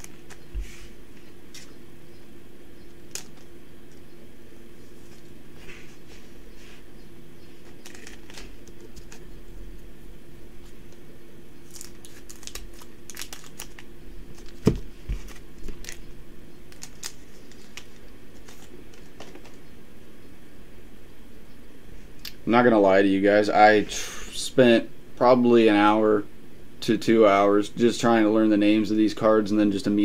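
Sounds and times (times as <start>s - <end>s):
foil pack crinkling: 3.0s - 3.5s, 7.6s - 9.3s, 11.6s - 16.1s, 16.7s - 19.6s.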